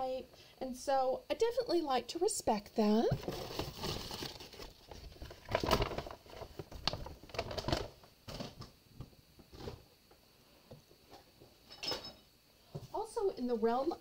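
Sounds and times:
plastic packages clicking and rustling: 0:03.2 - 0:08.7.

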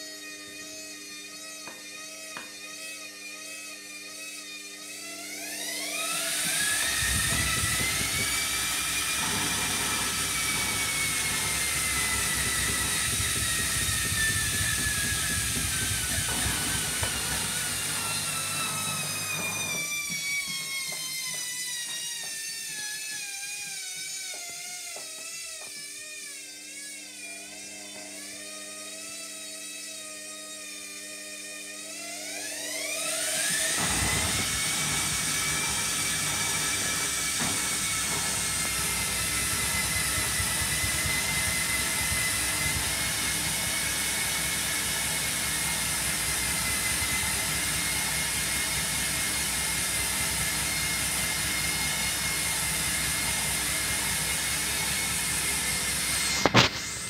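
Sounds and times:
washing machine spinning: 0:05.4 - 0:22.2, 0:32.3 - 0:57.0.

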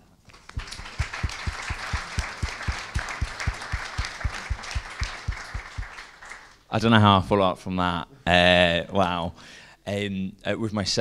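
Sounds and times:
audience applauding: 0:00.4 - 0:06.6.

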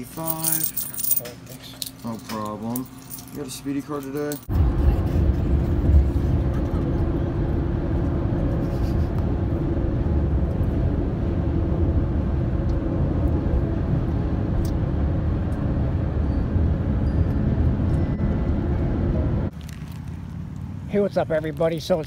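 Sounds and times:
low hum: 0:04.4 - 0:20.7
car tyre and engine noise: 0:04.5 - 0:22.0.

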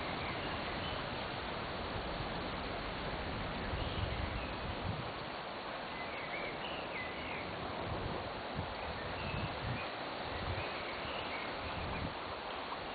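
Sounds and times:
river water flowing: 0:00.0 - 0:12.9
wind buffeting microphone: 0:00.7 - 0:05.3, 0:07.4 - 0:12.4.

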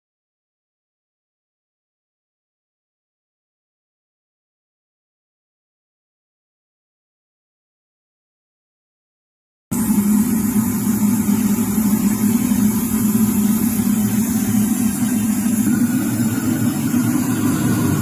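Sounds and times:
jet engine rumble: 0:09.7 - 0:18.0.

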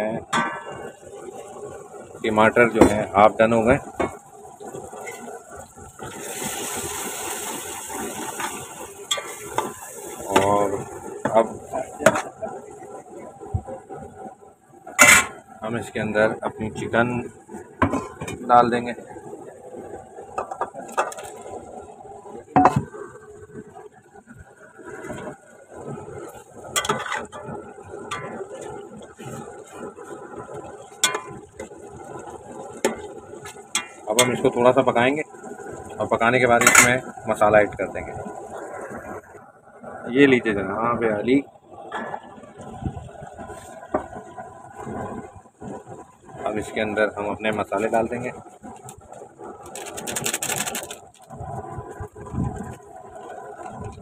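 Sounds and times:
tomatoes sizzling in oil: 0:00.0 - 0:13.6, 0:24.8 - 0:39.4
metal spoon stirring: 0:49.6 - 0:51.1.

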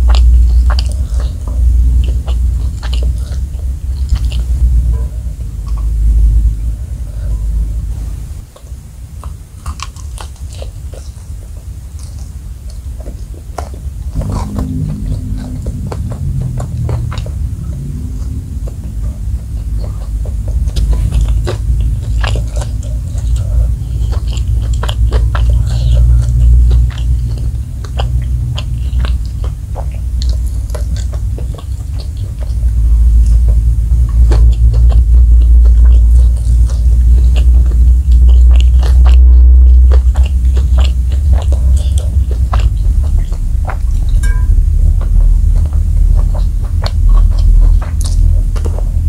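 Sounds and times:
chewing and crunching fried chicken: 0:00.0 - 0:49.0
low rumble: 0:00.0 - 0:49.0
wet mouth clicks: 0:12.0 - 0:49.0.

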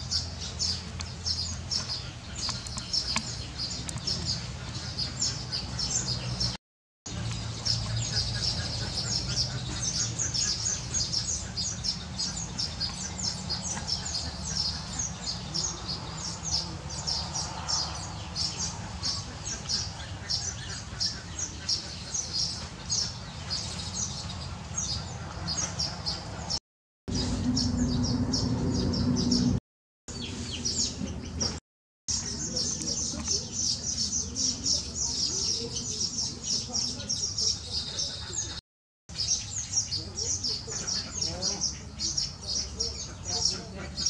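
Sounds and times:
birds chattering: 0:00.0 - 0:44.0.

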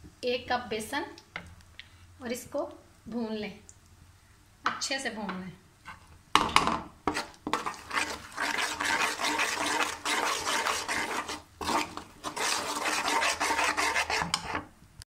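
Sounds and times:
sizzling in hot oil: 0:07.1 - 0:14.6
metal spoon scraping a pan: 0:07.1 - 0:14.7.

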